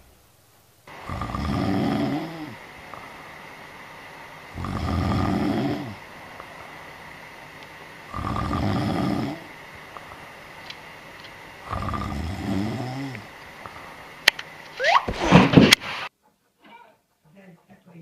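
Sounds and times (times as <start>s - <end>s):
cat snoring: 0.9s - 7.4s, 8.0s - 10.4s, 11.6s - 14.0s.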